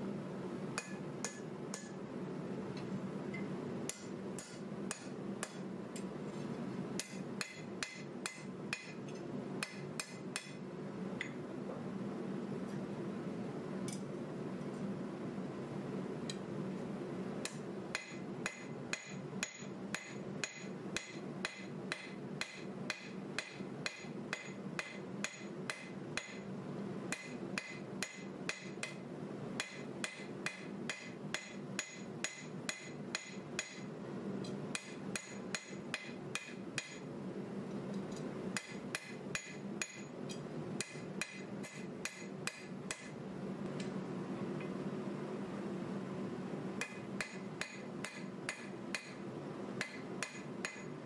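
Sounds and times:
hammer blows ringing on anvil: 0:00.8 - 0:02.0, 0:03.9 - 0:05.6, 0:07.0 - 0:09.0, 0:09.6 - 0:10.6, 0:17.5 - 0:26.4, 0:27.1 - 0:29.0, 0:29.6 - 0:33.9, 0:34.7 - 0:37.1, 0:38.6 - 0:40.1, 0:40.8 - 0:43.2, 0:46.8 - 0:49.2, 0:49.8 - 0:50.9.

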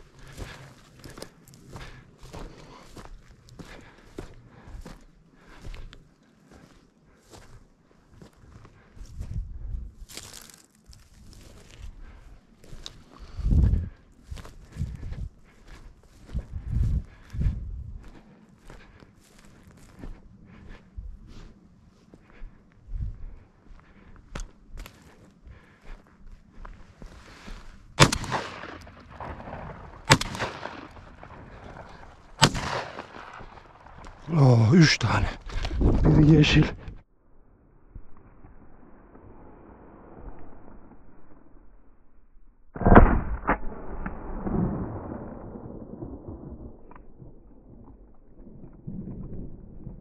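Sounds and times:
shotgun shots with echo: 0:28.0 - 0:33.6, 0:42.8 - 0:46.4.

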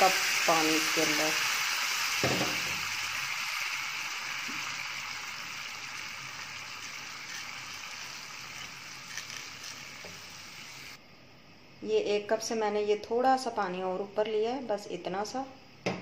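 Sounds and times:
water sizzling in hot pan: 0:00.0 - 0:11.0.

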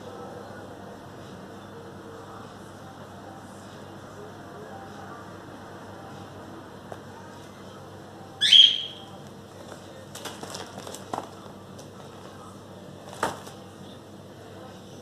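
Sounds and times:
high chirp: 0:08.4 - 0:09.2
paper sheets crackling: 0:09.6 - 0:12.4, 0:13.0 - 0:13.6.

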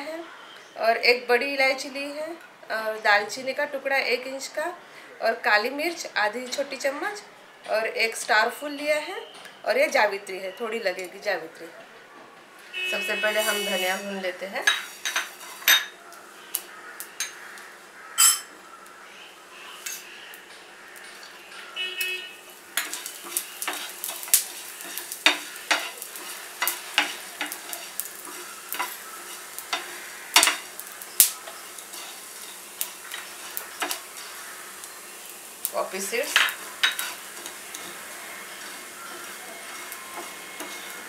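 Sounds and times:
faint steady hiss: 0:00.0 - 0:41.0
spatula scraping pan: 0:14.7 - 0:15.9, 0:22.6 - 0:41.0
seeds rattling in pan: 0:22.6 - 0:41.0.

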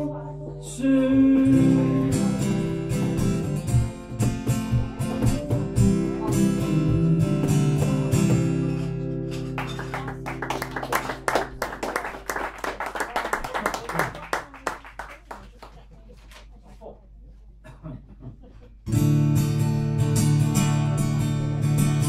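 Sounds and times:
acoustic guitar strumming: 0:00.0 - 0:11.8, 0:18.8 - 0:22.0
people clapping: 0:09.3 - 0:16.5.

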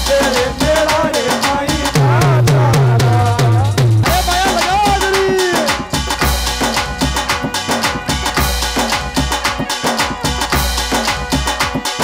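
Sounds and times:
fast drum rhythm: 0:00.0 - 0:12.0.

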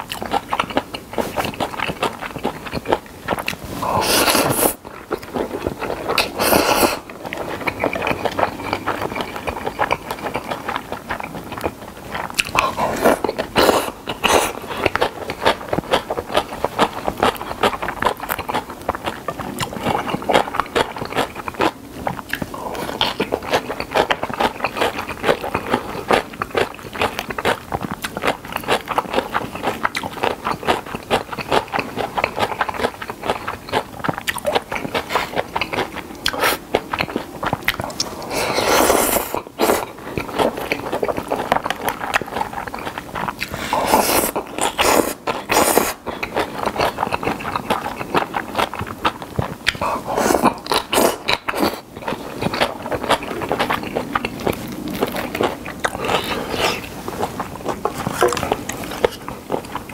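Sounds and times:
person chewing crunchy food: 0:00.0 - 0:59.9
noodles being slurped: 0:03.4 - 0:11.4, 0:34.3 - 0:59.9.

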